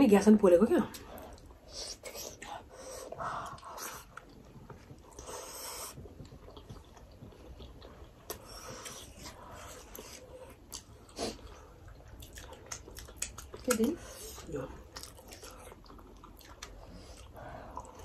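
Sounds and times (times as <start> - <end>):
person chewing: 0.9 - 18.0
breaths through the nose: 5.1 - 6.0
wet mouth clicks: 12.2 - 14.0.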